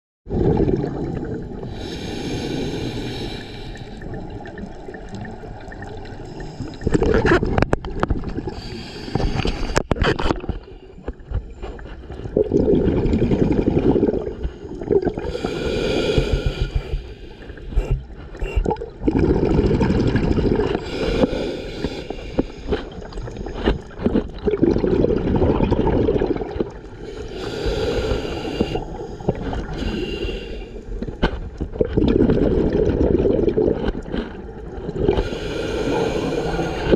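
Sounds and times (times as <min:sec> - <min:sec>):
bubbling exhale rumble: 0:00.3 - 0:36.9
hissing regulator inhale: 0:01.7 - 0:04.1, 0:08.5 - 0:10.0, 0:15.2 - 0:18.6, 0:20.8 - 0:22.9, 0:27.0 - 0:31.0, 0:35.1 - 0:36.9.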